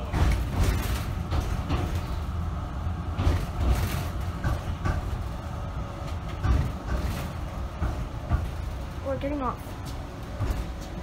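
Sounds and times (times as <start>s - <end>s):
knocks and clatter: 0.0s - 2.3s, 3.1s - 5.4s, 6.0s - 9.0s, 9.9s - 11.0s
tram rumbling on rails: 0.0s - 11.0s.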